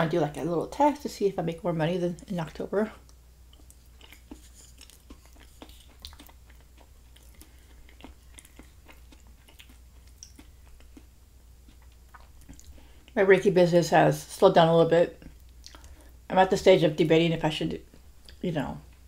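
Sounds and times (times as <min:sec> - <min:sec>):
person chewing: 0:03.0 - 0:13.2, 0:15.2 - 0:16.1.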